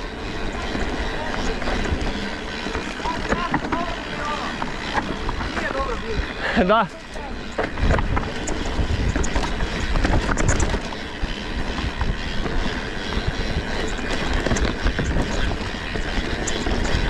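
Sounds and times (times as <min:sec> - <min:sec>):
bike clicks and rattles: 0:00.0 - 0:17.0
tyres rumbling on dirt trail: 0:00.0 - 0:17.0
wind on microphone: 0:07.3 - 0:17.0.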